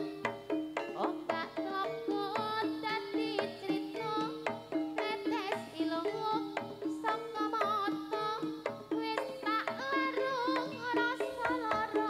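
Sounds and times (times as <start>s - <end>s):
hand drum strokes: 0.0s - 12.0s
repeating metallophone notes: 0.0s - 12.0s
wavering high melody: 0.0s - 12.0s.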